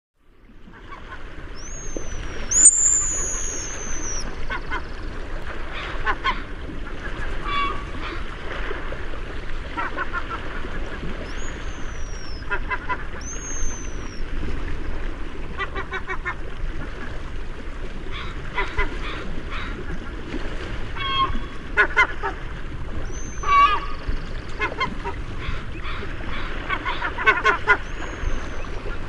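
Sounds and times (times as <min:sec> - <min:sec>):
high thin downward whistles: 0:01.8 - 0:04.2
gulls crows and waterfowl calling: 0:05.7 - 0:08.3, 0:18.1 - 0:20.1, 0:21.0 - 0:22.5, 0:23.1 - 0:29.0.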